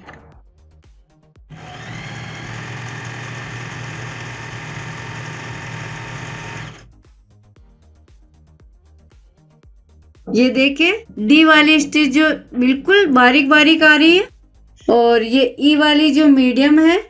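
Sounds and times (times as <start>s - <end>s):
electric sewing machine running: 1.5s - 6.9s.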